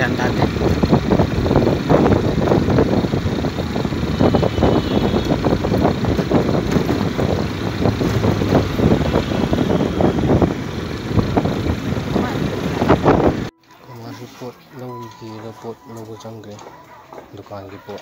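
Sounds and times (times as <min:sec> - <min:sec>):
wind buffeting microphone: 0:00.0 - 0:13.5
vehicle engine: 0:00.0 - 0:17.6
tyres on the road: 0:00.0 - 0:18.0.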